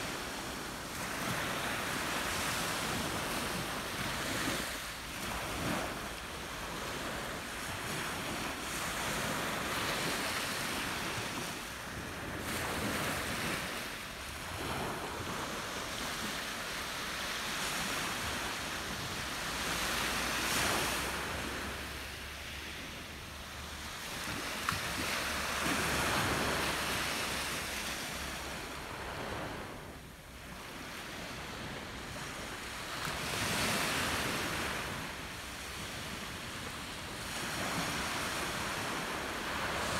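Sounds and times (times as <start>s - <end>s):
waves washing on pebble beach: 0.0s - 39.9s.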